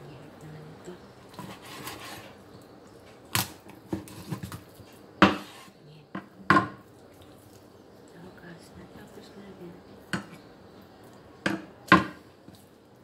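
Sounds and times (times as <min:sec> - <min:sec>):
knife cutting raw chicken: 0:01.4 - 0:02.4.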